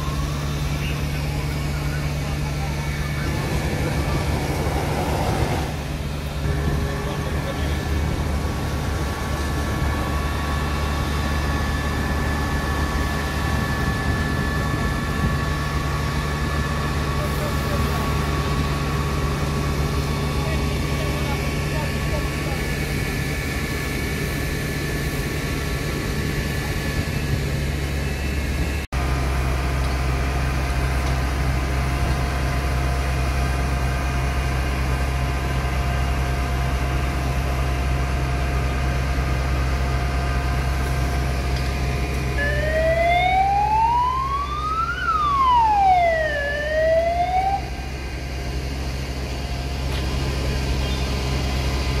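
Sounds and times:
siren wailing: 0.0 - 5.8, 42.3 - 48.2
fire engines droning: 0.0 - 52.0.

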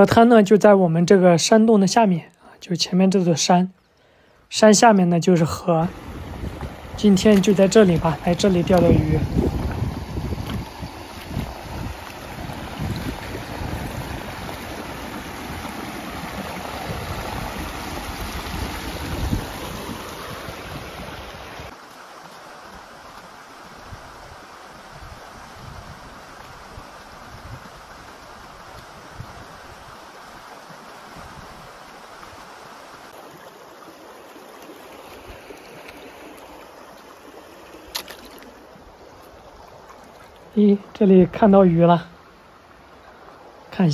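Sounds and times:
river rushing over stones: 4.5 - 43.9
wind buffeting microphone: 5.9 - 21.4.

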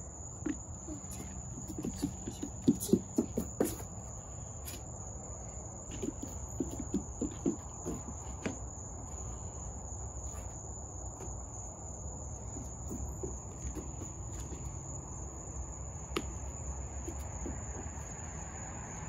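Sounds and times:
insects trilling: 0.0 - 19.0
soft thumps: 0.4 - 3.9, 5.9 - 8.6.

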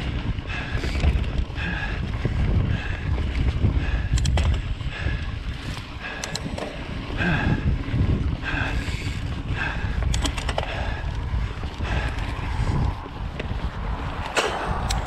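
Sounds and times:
bike rattling: 0.0 - 15.0
bike tyres on dirt trail: 0.0 - 15.0
wind on microphone: 0.0 - 15.0.

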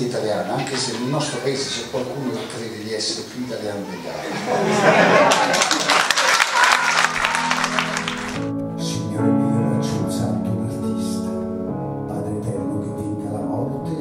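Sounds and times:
audience applause: 0.5 - 1.8, 4.3 - 8.5
band playing slow piece: 7.1 - 14.0.

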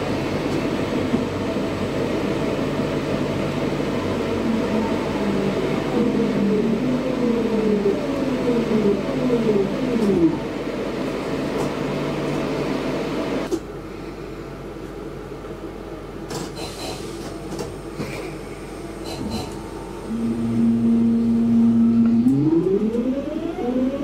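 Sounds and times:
train traction motors whining: 0.0 - 13.5, 18.7 - 24.0
train running noise: 0.0 - 13.7, 14.6 - 24.0.

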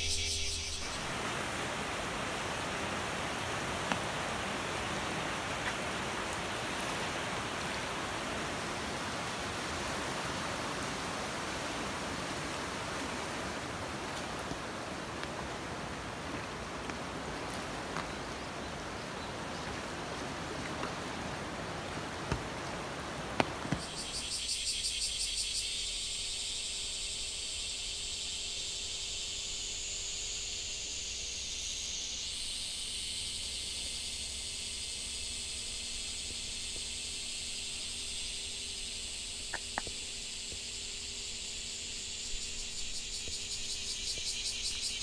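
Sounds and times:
insects chorus: 0.0 - 45.0
rushing flood water: 0.8 - 24.2.

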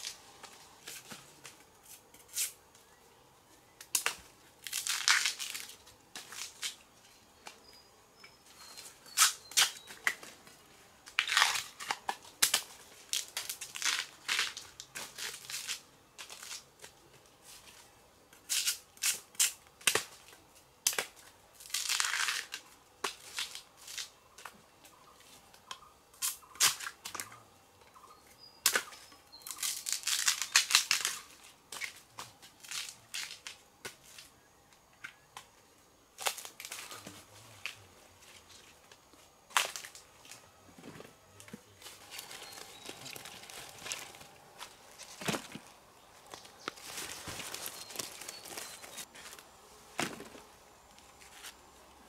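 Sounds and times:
crunching and tearing: 3.9 - 6.8, 11.1 - 16.7, 20.9 - 24.1, 29.4 - 32.0, 41.8 - 49.4.

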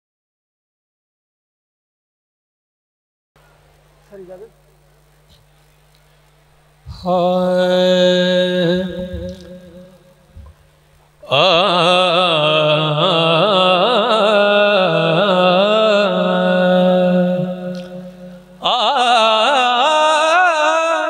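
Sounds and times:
man singing into microphone: 6.9 - 10.3, 11.2 - 21.0.

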